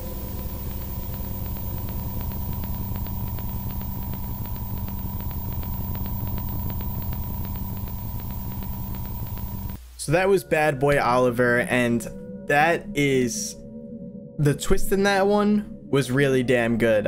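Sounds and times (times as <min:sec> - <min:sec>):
faint rapid clicks: 0:00.0 - 0:09.8
steady high tone: 0:00.0 - 0:09.8
low rumble and hum: 0:00.0 - 0:10.0.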